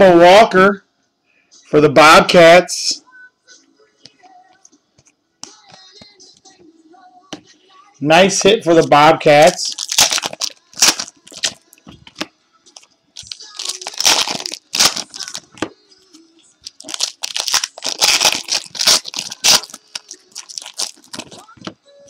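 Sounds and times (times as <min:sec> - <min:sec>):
card wrappers tearing and crinkling: 0:09.4 - 0:12.2, 0:12.8 - 0:15.7, 0:16.6 - 0:21.6.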